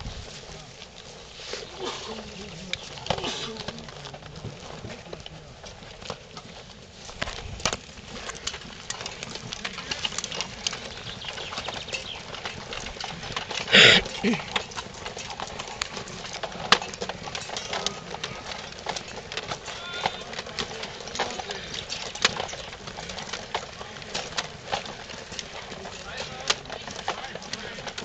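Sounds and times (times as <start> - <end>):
crowd footsteps on pavement: 0.0 - 28.0.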